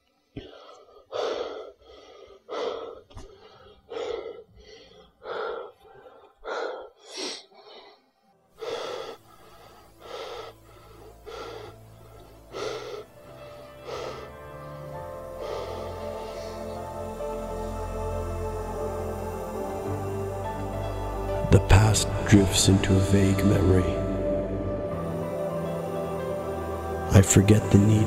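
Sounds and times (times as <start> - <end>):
man breathing hard: 0.1 - 22.2
music: 0.1 - 28.0.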